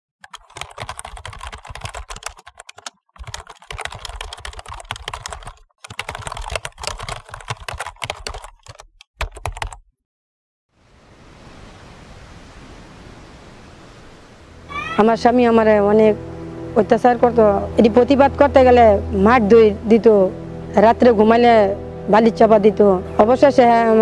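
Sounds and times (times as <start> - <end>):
rapid keyboard typing clicks: 0.2 - 9.8.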